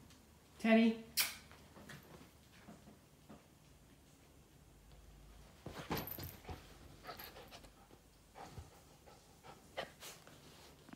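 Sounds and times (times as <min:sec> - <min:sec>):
dog rustling on a bed: 0:05.4 - 0:07.6.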